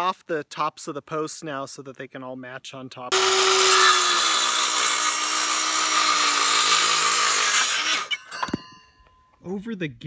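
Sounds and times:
saw motor winding down: 3.1 - 8.3
circular saw cutting wood: 3.1 - 8.4.

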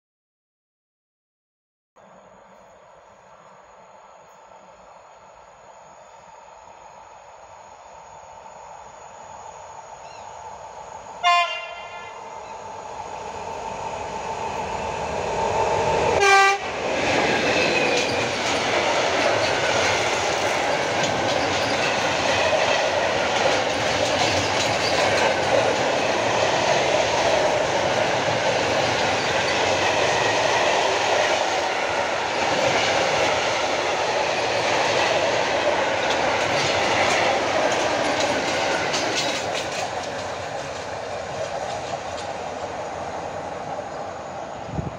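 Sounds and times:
train horn: 11.2 - 12.4, 16.2 - 16.8
freight wagons rumbling and clattering: 20.5 - 22.1, 23.3 - 26.0.

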